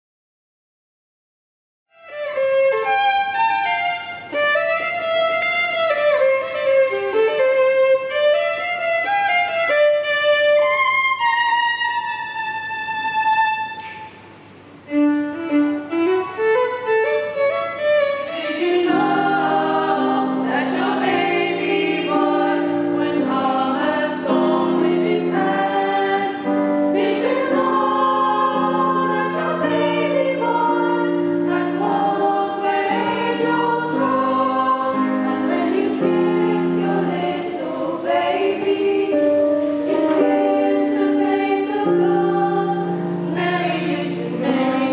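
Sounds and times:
solo violin melody: 0:01.9 - 0:14.2, 0:14.8 - 0:21.1
choir singing: 0:18.2 - 0:44.9.

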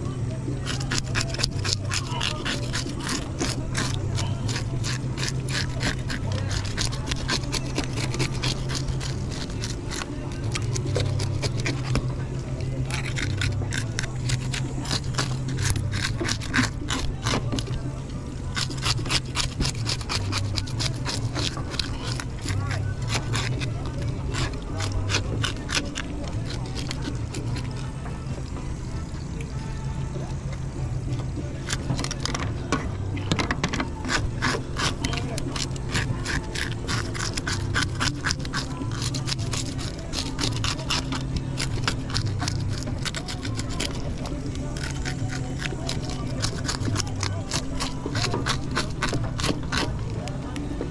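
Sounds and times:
steady low hum: 0:00.0 - 0:50.9
knife scraping fish scales: 0:00.5 - 0:28.2, 0:31.2 - 0:50.9.

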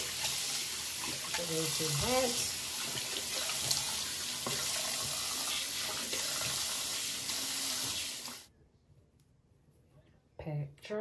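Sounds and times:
sink faucet running: 0:00.0 - 0:08.5.

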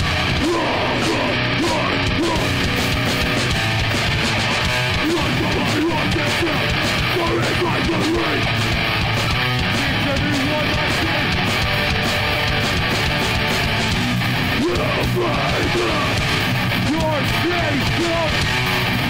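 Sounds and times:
bass guitar: 0:00.0 - 0:19.0
distorted electric guitars: 0:00.0 - 0:19.0
drum kit with cymbals: 0:00.0 - 0:19.0.

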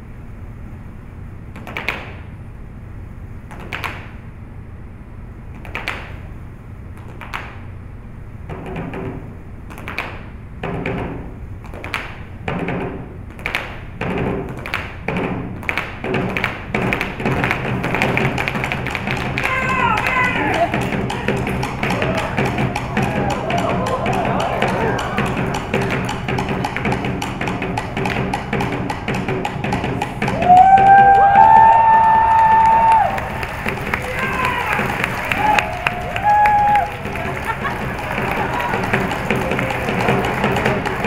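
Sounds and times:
percussion strikes: 0:10.6 - 0:41.0
bass drum: 0:13.9 - 0:41.0.

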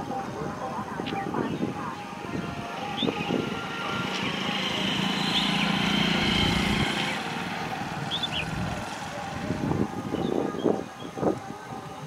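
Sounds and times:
passing engine drone: 0:00.0 - 0:11.1
high bird chirps: 0:08.1 - 0:08.5.

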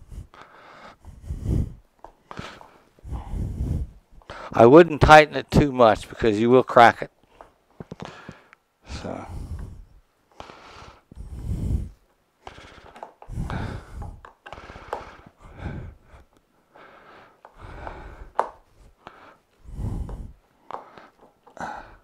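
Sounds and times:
heavy breathing: 0:00.0 - 0:04.7, 0:07.3 - 0:22.0
nut driver clicking on plastic: 0:12.4 - 0:13.3, 0:14.0 - 0:15.1, 0:17.4 - 0:18.6.

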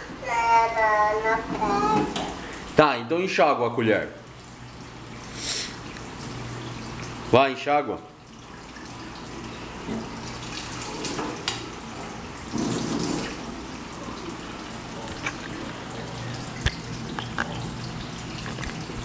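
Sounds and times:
faucet running into metal sink: 0:04.0 - 0:19.0.

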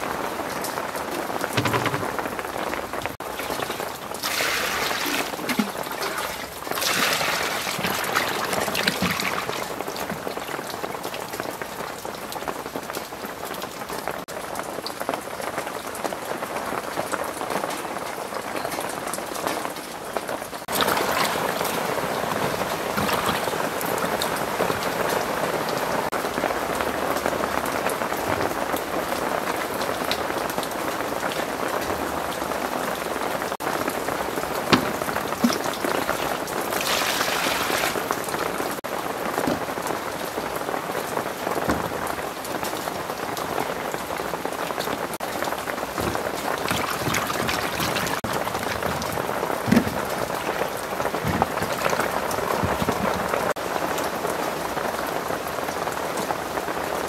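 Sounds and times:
heavy rain falling: 0:00.0 - 0:57.0
sharp knocks: 0:01.6 - 0:02.3, 0:34.7 - 0:36.0, 0:46.0 - 0:53.4.

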